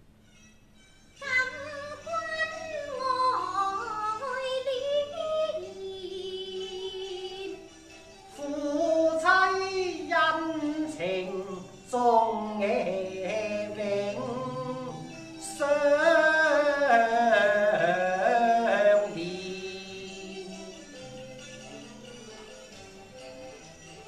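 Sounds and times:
woman singing opera: 0:01.2 - 0:07.6, 0:08.4 - 0:20.7.

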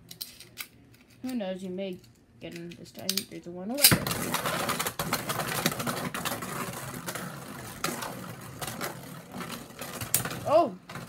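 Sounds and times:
spinning tops whirring and rattling: 0:02.7 - 0:11.0.

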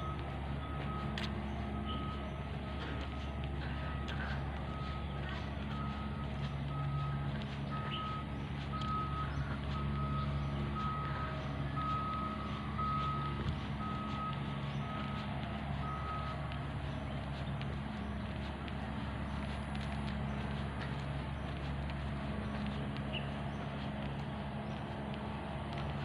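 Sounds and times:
reversing alarm beeping: 0:00.0 - 0:16.6
low steady hum: 0:00.0 - 0:26.0.

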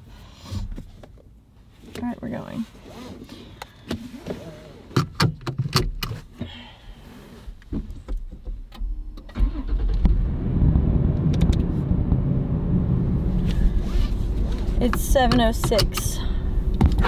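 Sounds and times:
car engine starting and idling: 0:08.7 - 0:17.0
seatbelt buckle clicks: 0:14.0 - 0:16.2.

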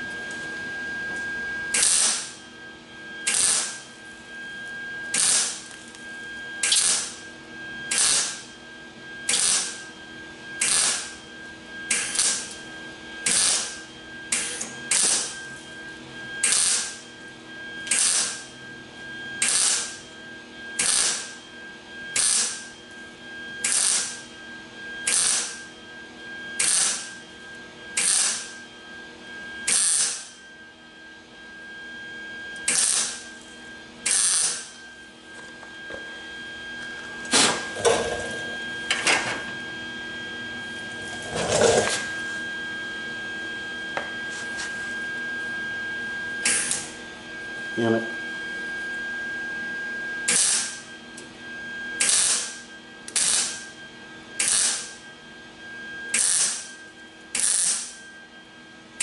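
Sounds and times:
welder crackling: 0:03.3 - 0:03.8, 0:05.1 - 0:06.0, 0:06.6 - 0:07.2, 0:07.9 - 0:08.4, 0:11.9 - 0:12.5, 0:22.2 - 0:22.6, 0:23.6 - 0:24.2, 0:25.1 - 0:25.6, 0:32.7 - 0:33.2, 0:46.4 - 0:46.9, 0:53.1 - 0:53.6.

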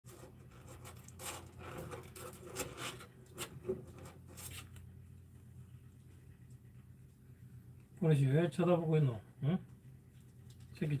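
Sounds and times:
scratchy rubbing and scraping: 0:00.1 - 0:04.8
low steady hum: 0:00.1 - 0:11.0.

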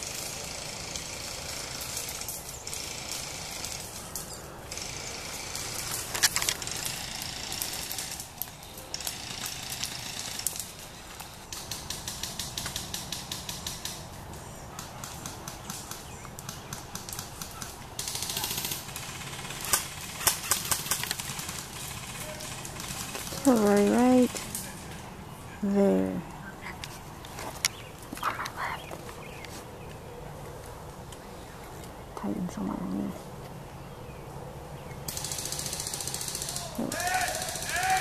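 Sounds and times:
dry leaves rustling: 0:00.0 - 0:31.8
sharp crack: 0:01.8 - 0:25.0.

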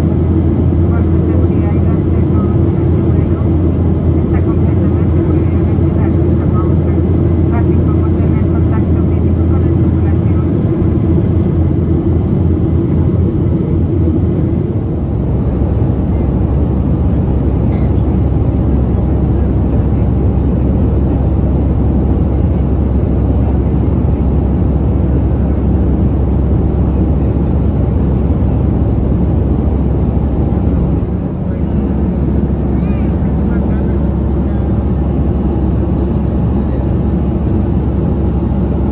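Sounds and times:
airplane cabin roar: 0:00.0 - 0:38.9.

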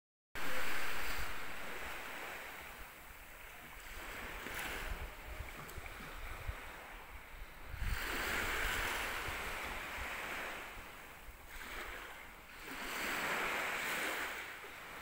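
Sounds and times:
waves washing onto sand: 0:00.4 - 0:15.0
wind rumble on microphone: 0:00.4 - 0:15.0.

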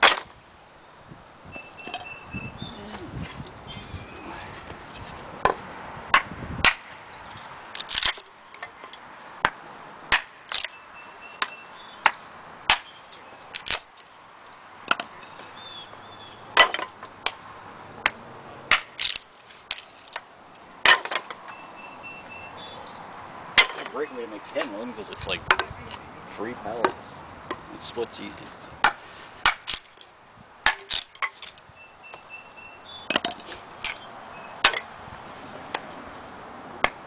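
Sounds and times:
hatchet chopping wood: 0:00.0 - 0:00.3, 0:05.4 - 0:07.0, 0:07.8 - 0:08.8, 0:09.4 - 0:10.8, 0:11.4 - 0:13.9, 0:16.6 - 0:17.4, 0:18.0 - 0:19.8, 0:20.8 - 0:21.4, 0:23.6 - 0:23.9, 0:28.8 - 0:30.0, 0:30.6 - 0:31.4, 0:34.6 - 0:34.9
wood cracking: 0:07.7 - 0:10.7, 0:13.5 - 0:14.1, 0:18.7 - 0:20.2, 0:28.8 - 0:30.1, 0:30.7 - 0:31.6.

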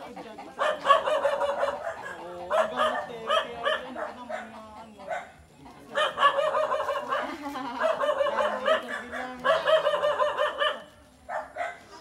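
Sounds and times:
dog barking rapidly: 0:00.6 - 0:05.3, 0:05.9 - 0:11.9.

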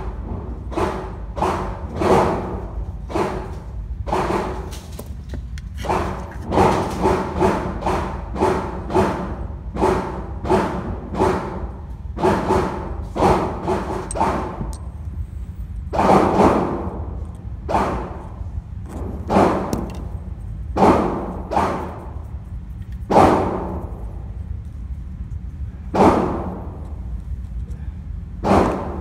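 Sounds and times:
echoing gunshots: 0:15.9 - 0:18.3, 0:19.1 - 0:19.8, 0:20.7 - 0:22.1, 0:23.1 - 0:23.8, 0:25.9 - 0:26.7, 0:28.4 - 0:29.0.

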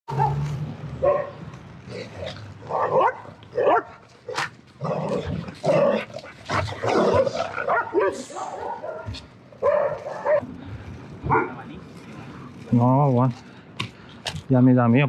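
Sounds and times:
dogs barking: 0:00.1 - 0:00.4, 0:01.0 - 0:01.4, 0:02.7 - 0:04.5, 0:05.7 - 0:10.4.

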